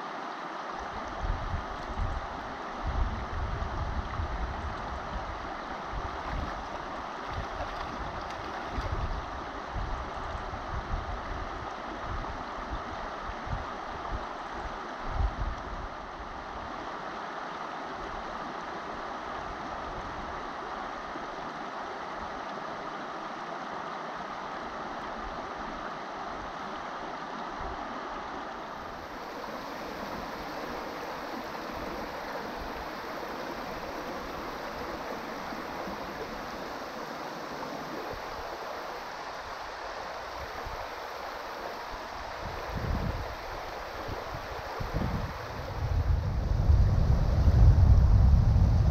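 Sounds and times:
river water over stones: 0:00.0 - 0:46.2.

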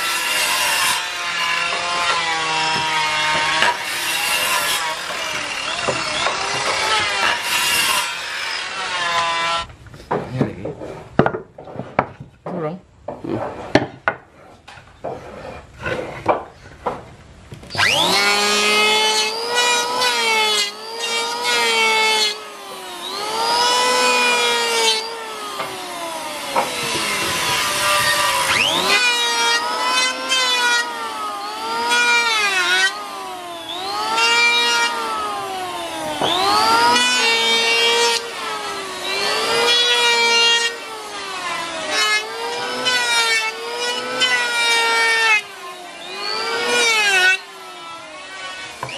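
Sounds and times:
electric planer whining: 0:00.0 - 0:09.8, 0:17.6 - 0:48.9
wood knocking: 0:09.9 - 0:15.3.

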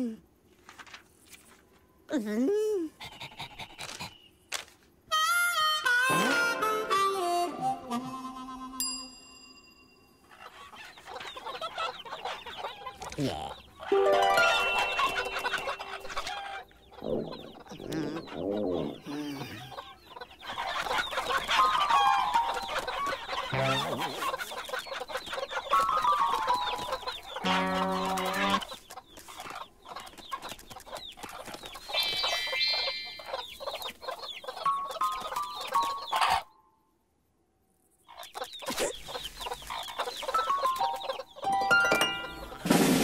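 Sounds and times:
cartoon hens clucking and squawking: 0:10.4 - 0:31.0, 0:31.8 - 0:36.6.

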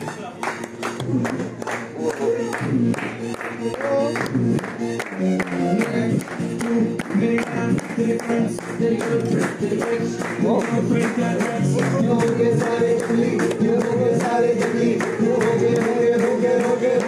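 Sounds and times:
music: 0:00.0 - 0:17.0
sharp claps: 0:00.0 - 0:17.0
group singing: 0:06.6 - 0:17.0.

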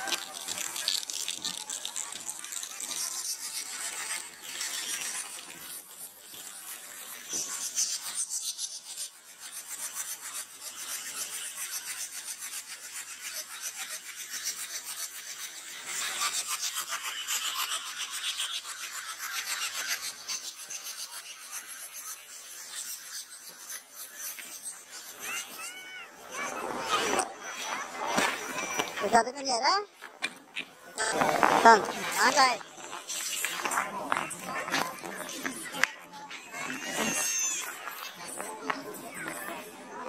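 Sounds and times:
skis scraping over snow: 0:26.2 - 0:40.0.

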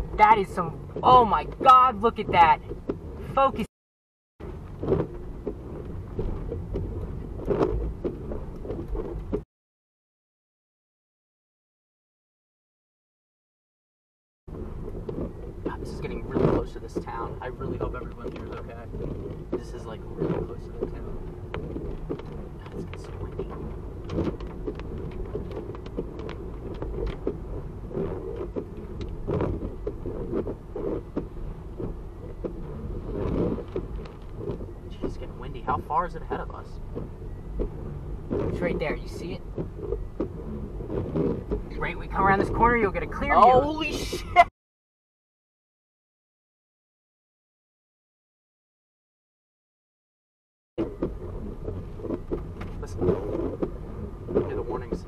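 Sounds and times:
road and wind noise in car: 0:00.0 - 0:03.7, 0:04.4 - 0:09.5, 0:14.5 - 0:44.5, 0:50.8 - 0:55.0.

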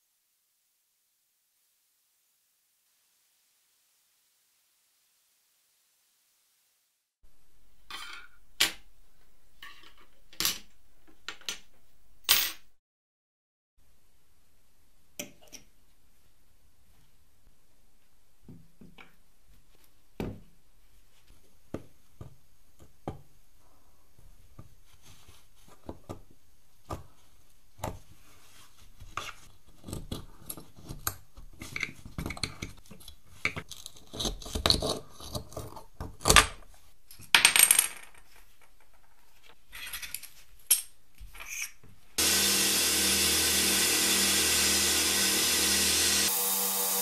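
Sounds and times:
sandblaster hissing: 0:42.2 - 0:47.0.

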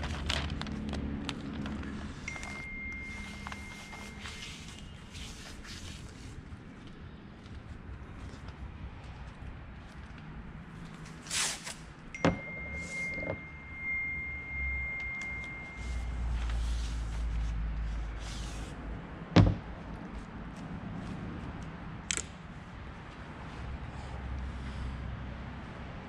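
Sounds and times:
paper and tape rustling: 0:00.0 - 0:07.0, 0:11.0 - 0:11.9, 0:15.8 - 0:18.8
steady high tone: 0:02.3 - 0:04.9, 0:12.2 - 0:16.6
sharp knocks: 0:19.4 - 0:19.7.

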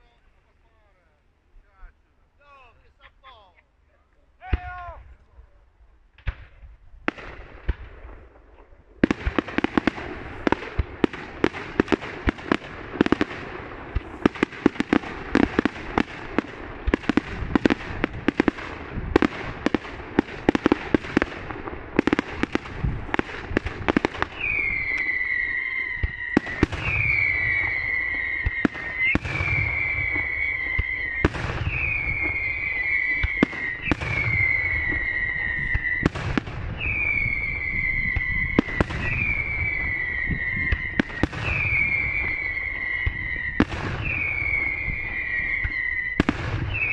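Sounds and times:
fireworks bangs and crackles: 0:06.1 - 0:46.9
shrill firework whistles: 0:24.0 - 0:46.9.

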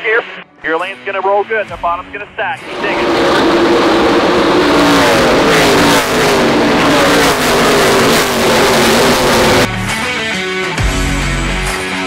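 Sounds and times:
race trucks accelerating past: 0:02.6 - 0:09.7.

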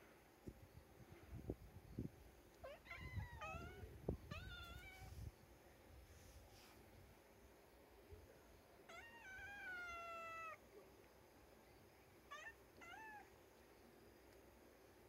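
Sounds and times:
cat meowing: 0:02.6 - 0:05.2, 0:08.9 - 0:10.6, 0:12.3 - 0:13.3.

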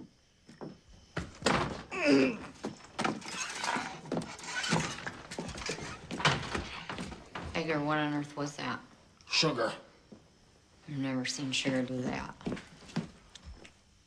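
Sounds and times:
heavy footsteps: 0:00.5 - 0:08.0
door knocks and thuds: 0:01.2 - 0:01.9, 0:04.0 - 0:07.8
door creaking: 0:01.4 - 0:07.8.

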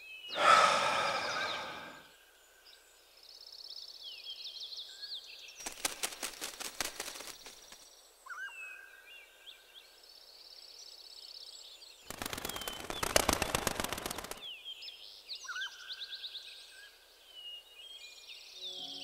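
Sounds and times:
birds calling: 0:00.1 - 0:02.2, 0:12.1 - 0:14.7.

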